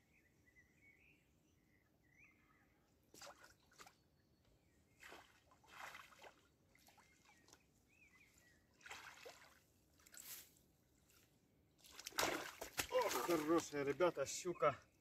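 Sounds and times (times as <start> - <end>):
bird chirps: 6.9 - 8.7
fish splashing in water: 11.9 - 13.6.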